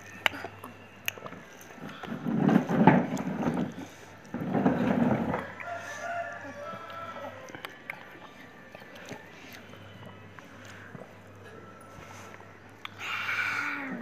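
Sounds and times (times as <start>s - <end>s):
rooster crowing: 5.2s - 7.6s.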